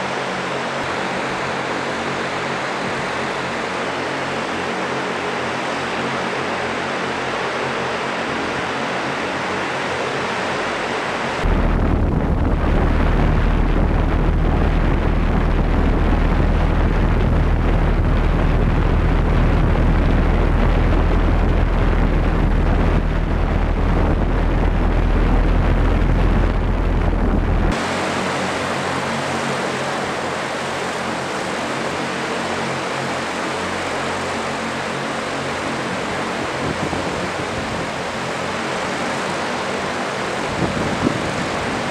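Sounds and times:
rotor downwash buffeting microphone: 0.1 - 41.9
electric rotors humming: 11.4 - 29.8.

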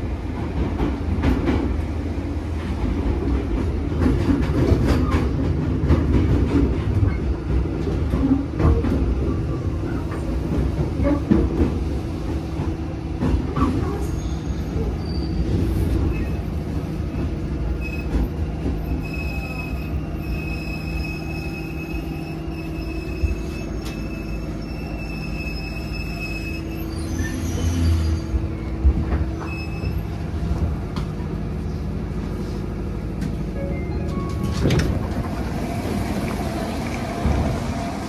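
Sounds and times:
train wheels rumbling on rail: 0.0 - 38.0
high running gear squeal: 19.0 - 28.7, 29.4 - 30.2.

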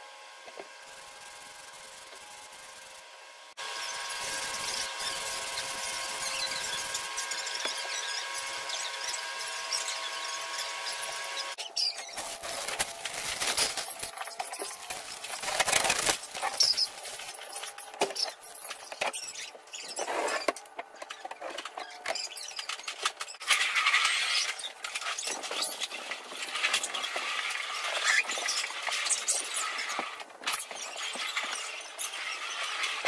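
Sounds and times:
masking paper crinkling: 11.9 - 20.0
tape being peeled off: 12.0 - 22.4.

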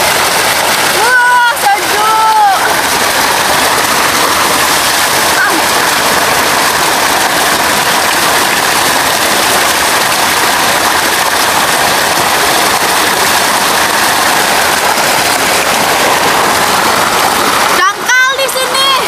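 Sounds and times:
water rushing and splashing: 0.0 - 19.0.

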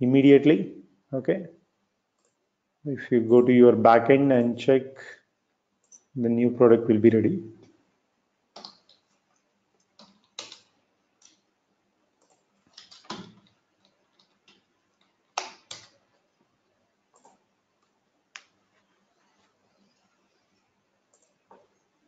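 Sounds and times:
keyboard and mouse clicks: 2.2 - 2.4, 8.5 - 11.5, 12.2 - 16.2, 17.1 - 18.6, 21.0 - 21.8.

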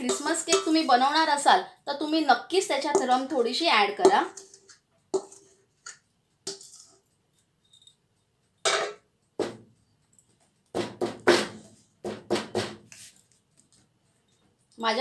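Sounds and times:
spatula scraping steel bowl: 0.0 - 0.9, 2.8 - 7.1.

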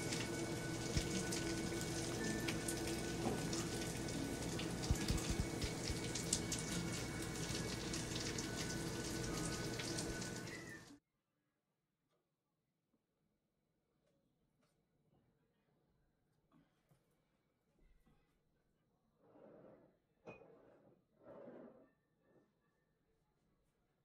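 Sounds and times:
steak sizzling and crackling: 0.0 - 10.8.

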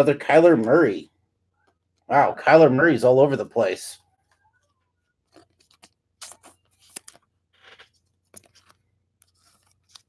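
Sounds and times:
cards rustling and scraping: 4.2 - 10.0.

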